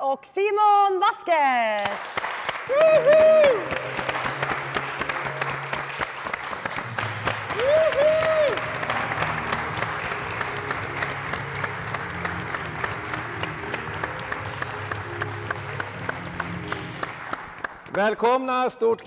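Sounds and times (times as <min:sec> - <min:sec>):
audience applauding: 0:01.8 - 0:18.8
background music with steady beat: 0:02.7 - 0:19.0.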